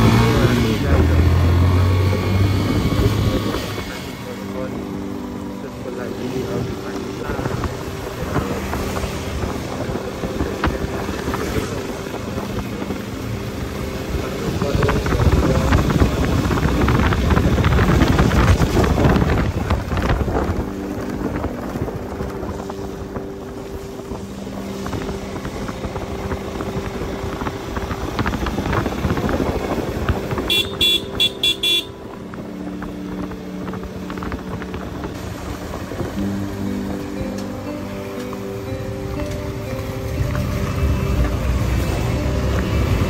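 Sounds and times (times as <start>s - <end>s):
motorcycle engine running: 0.0s - 43.0s
wind buffeting microphone: 6.5s - 37.3s
high-pitched horn beeps: 30.5s - 32.1s.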